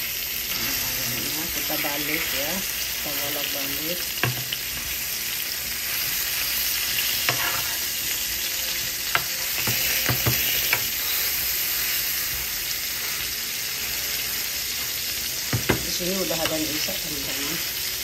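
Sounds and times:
chicken sizzling in oil: 0.0s - 18.0s
metal spoon scraping a pan: 6.8s - 8.2s, 8.8s - 15.0s.

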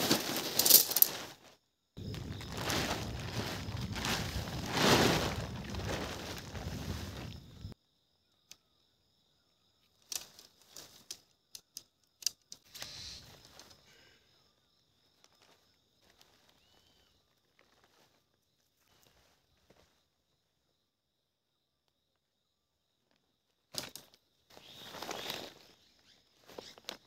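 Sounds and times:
tent fabric rustling: 0.0s - 7.8s, 15.4s - 20.1s, 24.5s - 27.0s
tent poles and pegs clicking: 10.0s - 13.8s, 23.7s - 24.2s.

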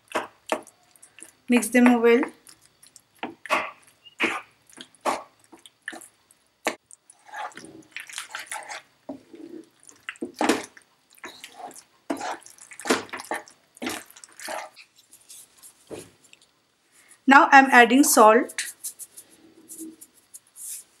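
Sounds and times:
wet squelches of stirred sauce: 0.0s - 1.6s, 2.3s - 17.2s.

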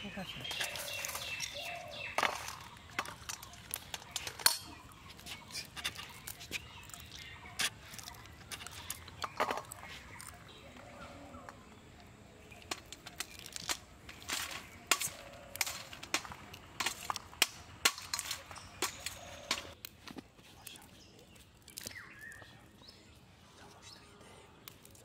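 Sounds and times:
peas pinging on steel plate: 0.4s - 9.8s
pea pods splitting: 0.4s - 10.4s, 12.5s - 20.2s.

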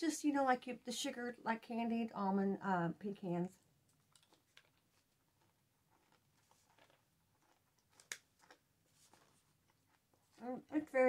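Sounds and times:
faint crunching of chewing: 3.8s - 11.0s.

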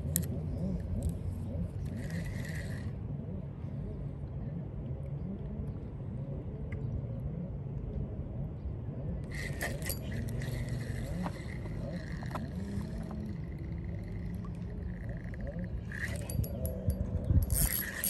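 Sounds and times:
steady low rumble: 0.0s - 18.0s
fishing line hissing off reel: 17.5s - 18.0s.

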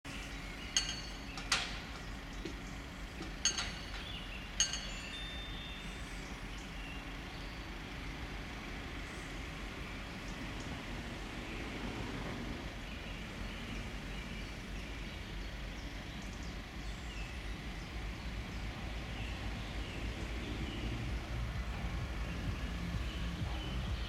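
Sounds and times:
ringing metallic strikes: 0.6s - 2.6s, 3.2s - 6.2s
low rumble: 17.0s - 24.0s.

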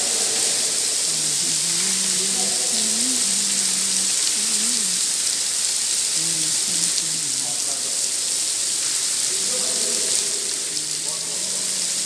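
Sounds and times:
faint voices talking: 0.0s - 5.1s
rain falling steady hiss: 0.0s - 12.0s.

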